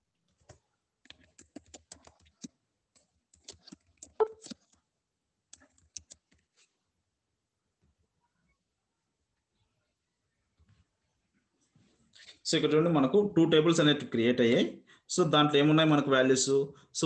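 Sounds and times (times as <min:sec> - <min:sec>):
typing on computer keyboard: 0:00.4 - 0:04.8, 0:05.5 - 0:06.5.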